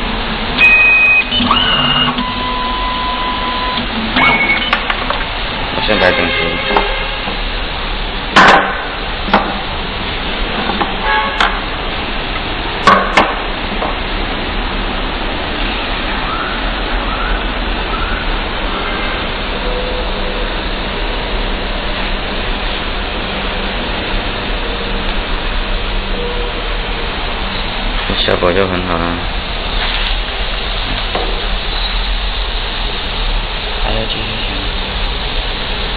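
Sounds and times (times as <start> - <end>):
steady hiss: 5.2 - 35.9
sharp knocks and clacks: 8.4 - 9.6.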